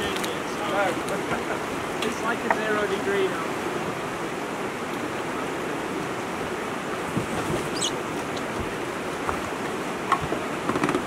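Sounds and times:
river rapids rushing: 0.0 - 11.0.

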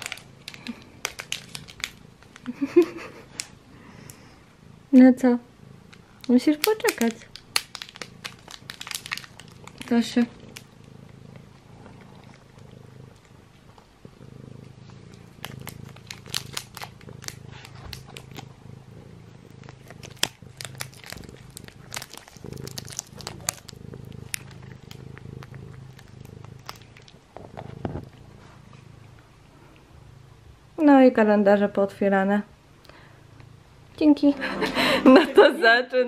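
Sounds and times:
cat licking and chewing: 0.0 - 3.6, 5.6 - 27.9
cat purring: 0.0 - 36.0.

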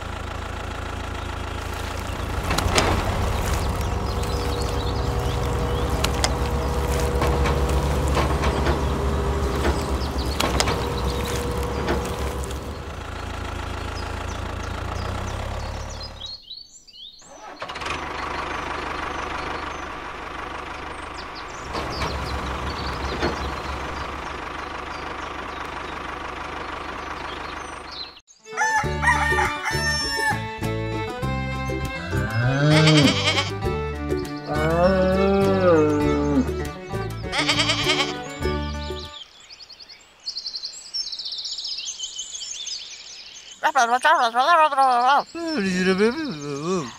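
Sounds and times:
mini tractor running: 0.0 - 16.4, 17.3 - 28.2, 29.0 - 33.8, 35.5 - 38.8
music: 28.4 - 39.2
short animal calls: 32.0 - 33.6, 37.3 - 38.2.

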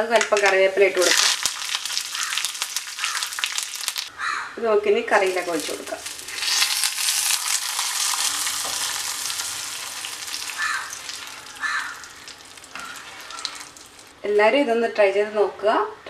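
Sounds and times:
hot oil sizzling: 0.8 - 4.1, 5.2 - 14.2
spoon stirring: 5.2 - 14.1.

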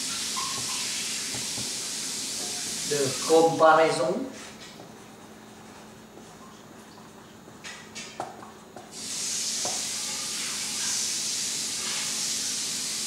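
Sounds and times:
loud steady hiss: 0.0 - 4.0, 8.9 - 13.0.

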